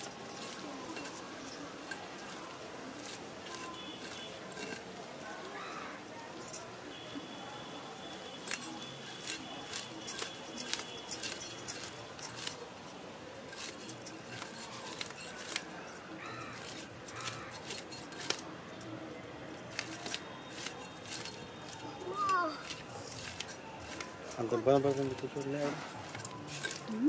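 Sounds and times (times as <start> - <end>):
knife scraping fish scales: 22.6 - 24.2, 25.9 - 26.9.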